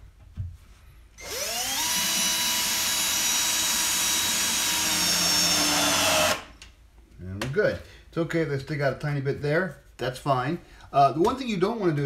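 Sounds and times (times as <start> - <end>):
cordless drill driving a screw: 1.2 - 6.6.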